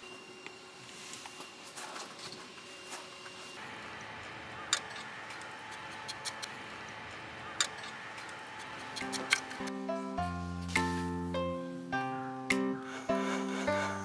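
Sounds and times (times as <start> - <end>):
steady low hiss: 9.0 - 14.0.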